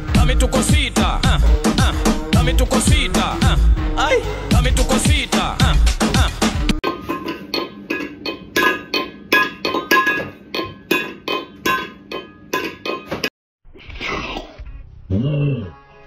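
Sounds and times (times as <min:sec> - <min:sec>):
metal bowl clanking: 0:06.8 - 0:13.3.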